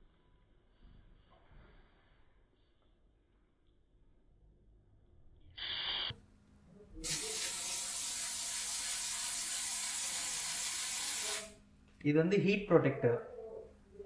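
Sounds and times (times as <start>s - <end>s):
aerosol spray hissing: 5.6s - 6.1s, 7.0s - 11.6s.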